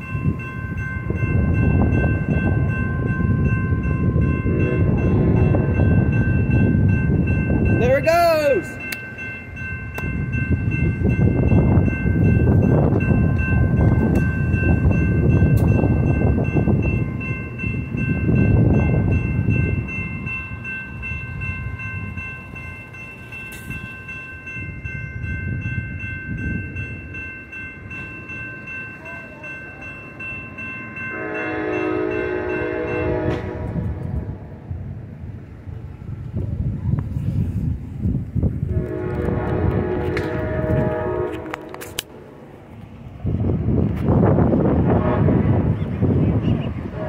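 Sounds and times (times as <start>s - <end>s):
crossing warning bell ringing: 0.0s - 35.2s, 38.0s - 47.0s
train wheels rumbling: 0.0s - 47.0s
train horn: 31.1s - 34.5s, 38.7s - 42.0s, 44.8s - 45.7s, 46.4s - 47.0s.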